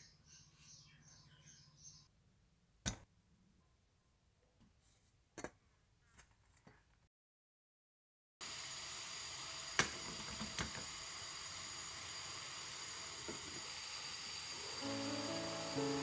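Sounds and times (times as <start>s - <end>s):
water boiling: 8.4s - 16.0s
music: 14.7s - 16.0s.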